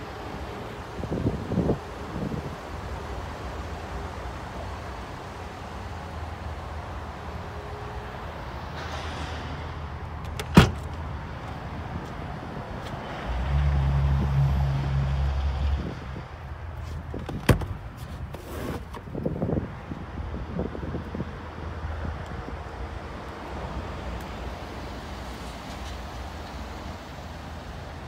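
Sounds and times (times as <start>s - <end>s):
tailgate latch click: 10.2s - 10.9s.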